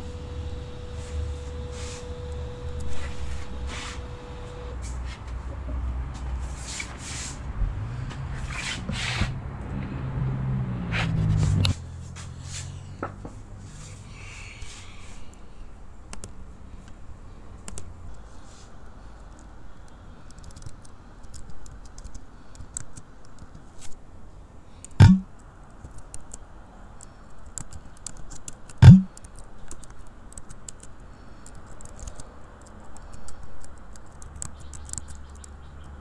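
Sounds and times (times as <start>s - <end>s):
heavy thumps: 25.0s - 25.2s, 28.8s - 29.1s.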